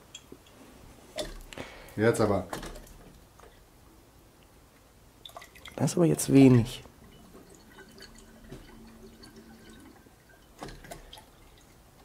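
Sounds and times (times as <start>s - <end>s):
liquid trickling into a glass: 5.2s - 11.8s.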